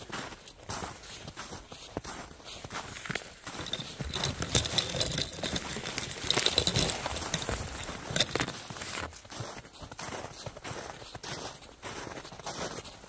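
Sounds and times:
footsteps crunching through snow: 0.0s - 4.5s, 5.4s - 13.0s
twigs brushing: 3.4s - 9.0s.

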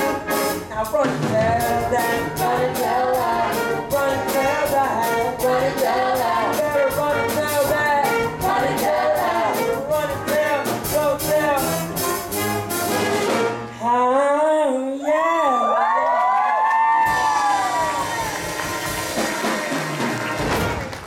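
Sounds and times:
steady drum beat: 0.0s - 13.6s, 17.1s - 21.0s
orchestra playing show tune: 0.0s - 13.9s, 17.0s - 21.0s
voices singing: 1.2s - 11.4s.

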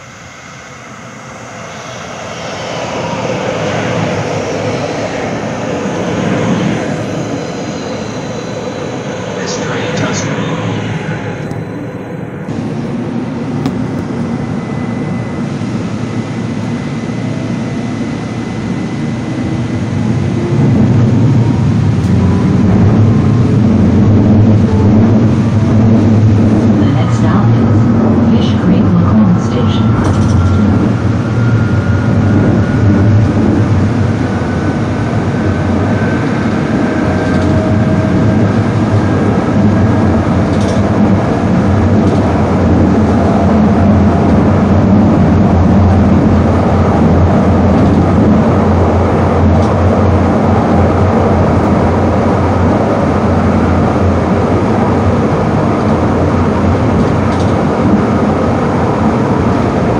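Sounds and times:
rising whine: 0.0s - 59.9s
vehicle rumbling: 19.6s - 59.9s.

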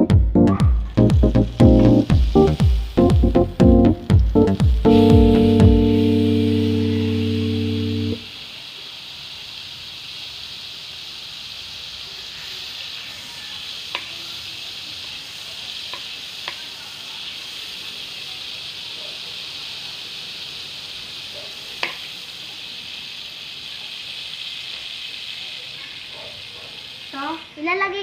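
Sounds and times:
held music chord: 0.0s - 8.2s
margarine sizzling in a pan: 0.7s - 28.0s
utensil clicking against pan: 13.9s - 14.2s, 15.8s - 16.7s, 21.8s - 22.2s.

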